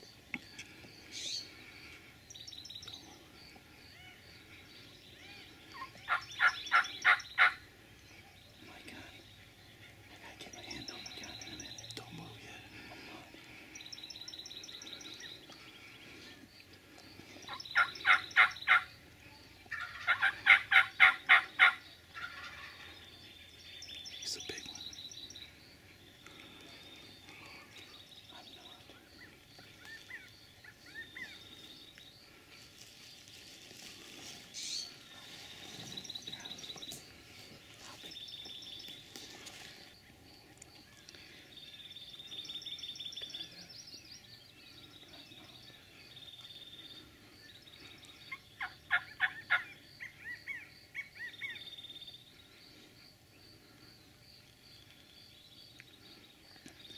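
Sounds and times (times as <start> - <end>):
songbirds chirping: 0.0 - 56.9
turkey gobbling: 5.8 - 7.6, 17.8 - 18.9, 19.7 - 22.9, 48.6 - 50.2.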